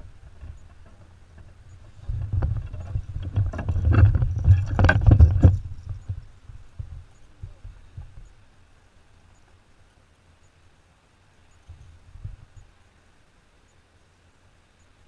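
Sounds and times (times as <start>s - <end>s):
knocks and thumps in a kayak: 0.0s - 8.3s.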